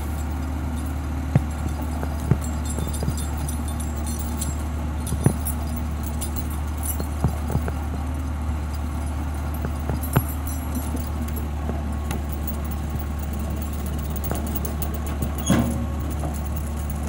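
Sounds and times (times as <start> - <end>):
diesel engine running: 0.0 - 17.0
winch dragging logs: 0.0 - 17.0
sharp knocks from logs: 1.3 - 3.8.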